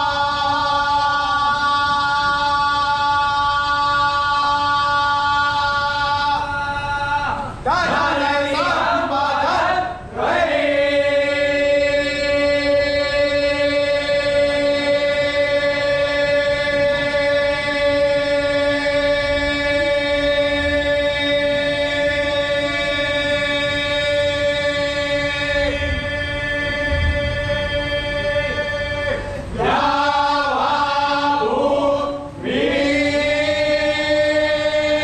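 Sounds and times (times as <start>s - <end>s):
voices chanting: 0.0s - 35.0s.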